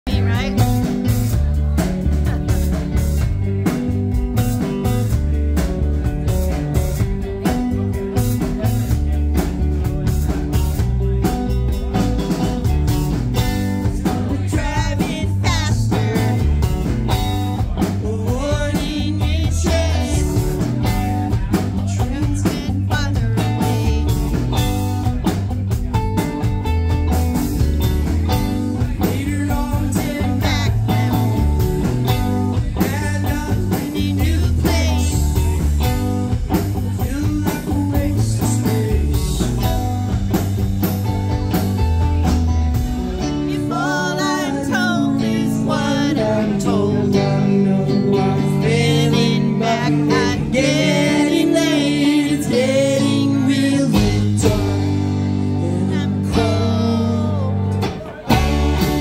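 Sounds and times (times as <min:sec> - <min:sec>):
rock band playing: 0:00.0 - 0:59.0
drum hits: 0:58.0 - 0:59.0.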